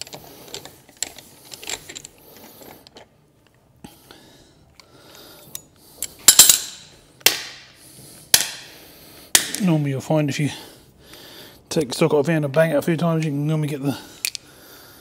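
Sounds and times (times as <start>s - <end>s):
metal hand tools clinking: 6.3s - 6.9s
sharp metallic clanks: 6.3s - 7.5s.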